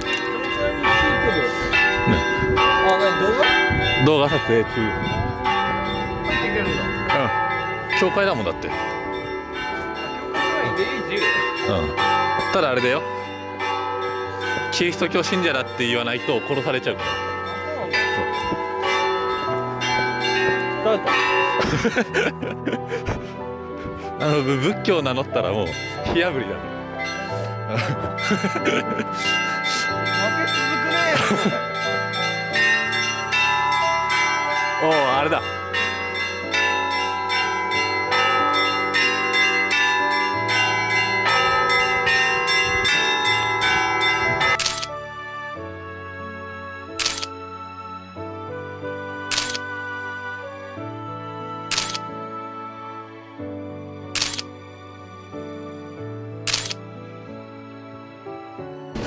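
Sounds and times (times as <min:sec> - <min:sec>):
church bells ringing: 0:00.0 - 0:45.8, 0:49.3 - 0:49.7
soft background music: 0:00.0 - 0:59.0.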